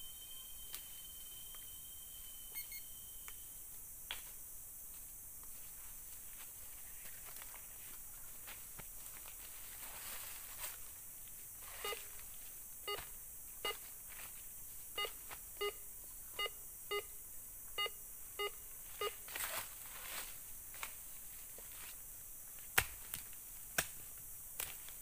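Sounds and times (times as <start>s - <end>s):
metal detector beeps: 0.0s - 3.5s, 11.8s - 12.1s, 13.6s - 13.8s, 15.0s - 15.8s, 16.4s - 17.1s, 17.8s - 19.2s
dry leaves rustling: 5.5s - 11.0s, 19.3s - 22.0s.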